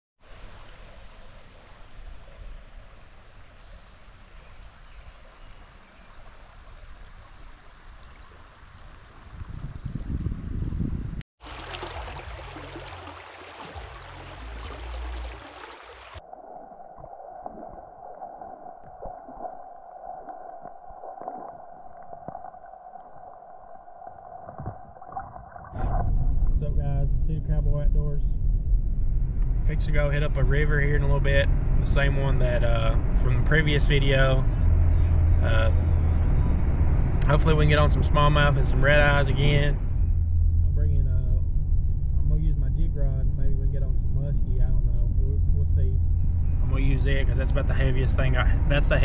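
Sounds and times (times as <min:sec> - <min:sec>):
creek water flowing: 0:00.2 - 0:10.2, 0:11.4 - 0:26.0
muffled underwater current rushing: 0:08.6 - 0:26.6
low rumble: 0:16.1 - 0:49.0
small underwater clicks and ticks: 0:17.5 - 0:25.7.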